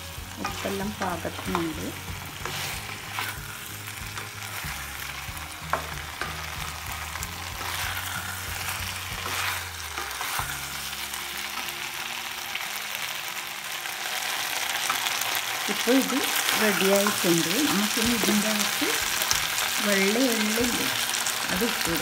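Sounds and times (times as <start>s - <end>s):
chicken sizzling in a pan: 0.0s - 22.0s
spatula scraping a pan: 0.4s - 11.1s, 16.0s - 19.7s.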